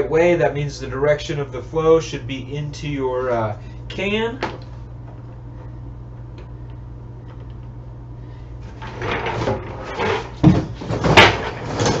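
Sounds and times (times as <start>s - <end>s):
steady low hum: 0.0s - 12.0s
plastic trash can clattering: 8.8s - 12.0s.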